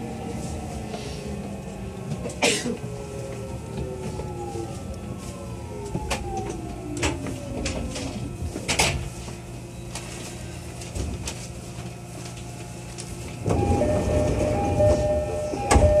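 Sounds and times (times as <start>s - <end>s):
train motors whining downward: 0.0s - 8.8s, 13.4s - 16.0s
two-note door chime: 13.6s - 16.0s.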